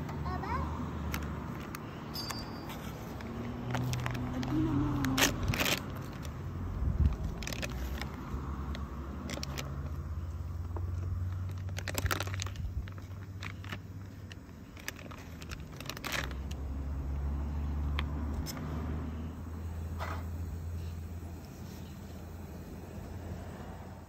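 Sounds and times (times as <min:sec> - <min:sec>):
plastic bag crinkling: 0:03.2 - 0:06.4, 0:07.0 - 0:10.0, 0:10.8 - 0:16.6.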